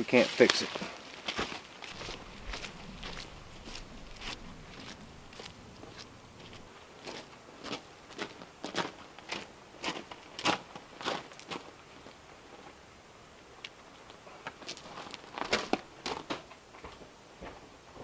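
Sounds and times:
footsteps on gravel: 0.6s - 10.6s.

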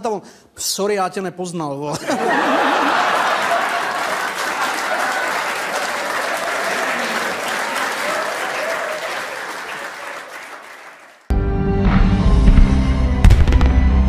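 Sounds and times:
audience laughter: 2.0s - 10.3s
audience applauding: 2.2s - 11.3s.

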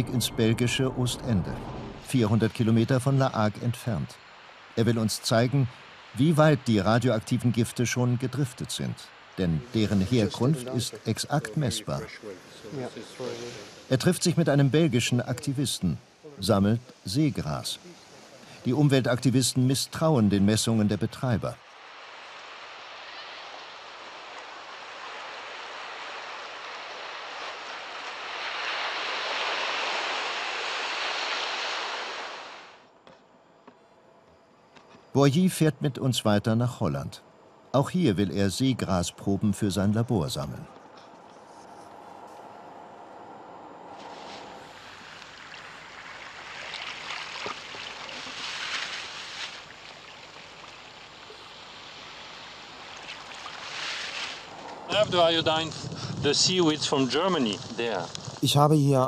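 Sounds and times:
sea water washing and surging: 0.0s - 18.8s, 21.5s - 32.9s, 42.8s - 55.6s
waves breaking on beach: 1.4s - 19.0s, 20.7s - 32.9s, 43.9s - 57.6s.

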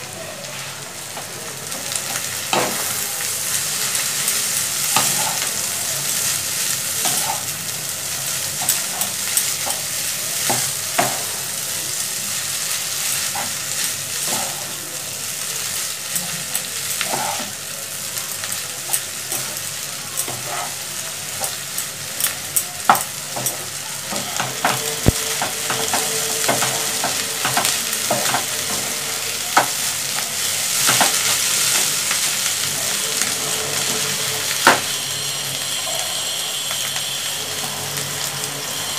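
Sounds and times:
noodles sizzling in a pan: 0.0s - 38.9s
spatula scraping and knocking pan: 17.0s - 17.6s, 22.9s - 29.8s, 30.8s - 32.1s.

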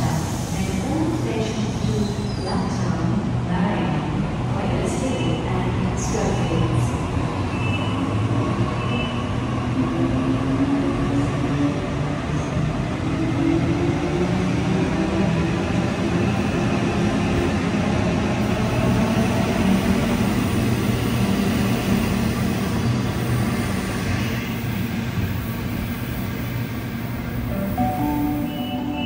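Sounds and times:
electric train hum: 9.5s - 29.0s.

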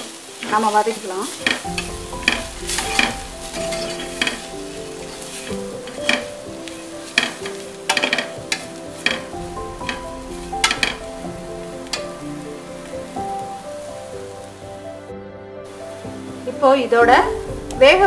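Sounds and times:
light sizzle: 0.0s - 18.0s
soft background music: 0.0s - 18.0s
metal ladle scraping pot: 1.2s - 14.3s.

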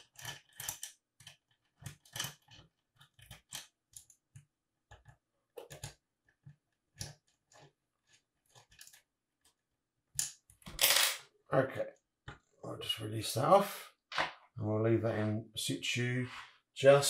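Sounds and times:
small metal parts clicking and scraping: 0.0s - 4.1s.

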